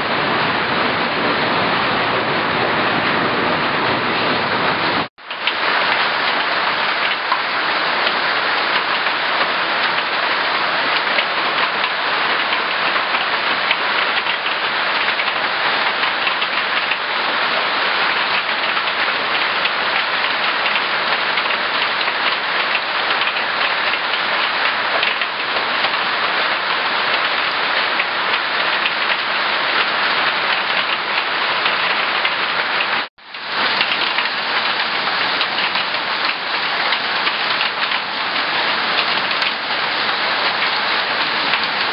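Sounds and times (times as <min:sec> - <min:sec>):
hail and rain on metal roof: 0:00.0 - 0:41.9.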